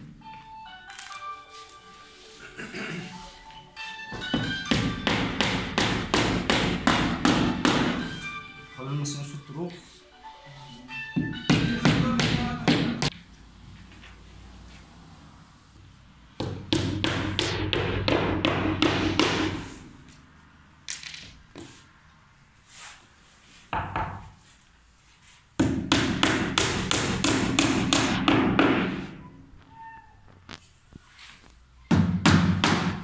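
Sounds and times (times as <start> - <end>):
hammer striking nails: 4.3 - 8.1, 11.2 - 13.2, 16.4 - 19.6, 25.6 - 29.1, 31.9 - 33.0.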